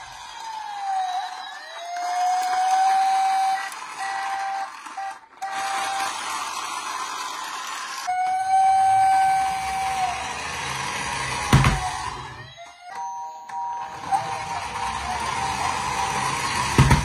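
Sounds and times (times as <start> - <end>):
toy electronic siren wailing: 0.0 - 17.0.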